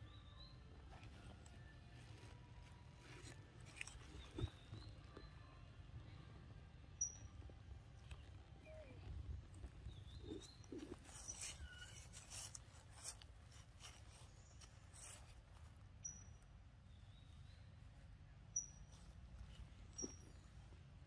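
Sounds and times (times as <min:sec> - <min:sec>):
monkey eating: 0:08.0 - 0:15.7.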